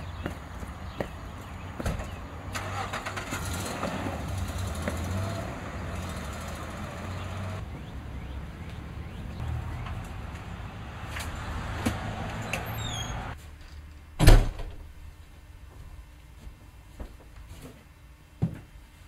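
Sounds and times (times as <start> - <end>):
car engine humming: 0.0 - 13.4.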